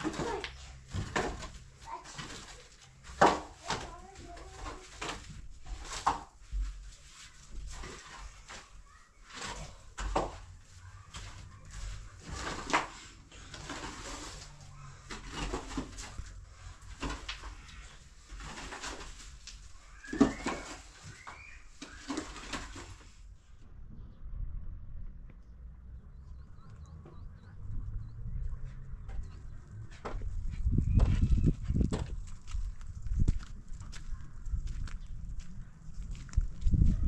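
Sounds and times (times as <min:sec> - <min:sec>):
rake scraping earth: 0:11.0 - 0:23.2.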